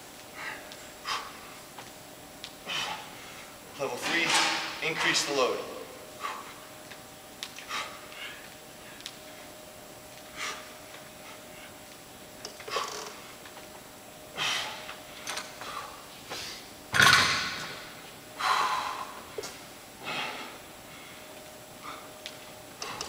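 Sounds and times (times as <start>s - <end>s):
man breathing hard: 0.3s - 1.6s, 2.6s - 3.6s, 6.1s - 6.7s, 7.6s - 9.0s, 10.3s - 11.8s, 14.3s - 16.7s, 18.3s - 22.2s.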